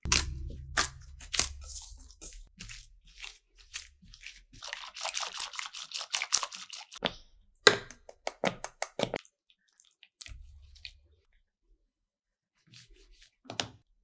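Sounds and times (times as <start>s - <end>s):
squishy sounds: 2.2s - 7.3s, 8.1s - 11.1s.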